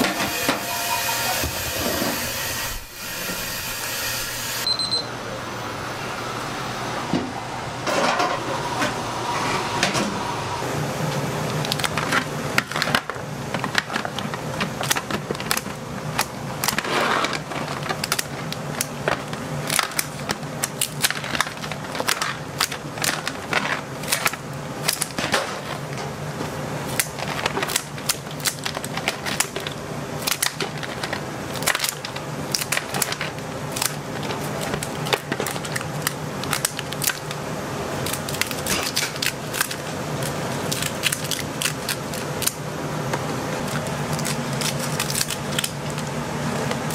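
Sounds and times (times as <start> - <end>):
crab shell cracking: 38.0 - 42.6, 43.6 - 46.0.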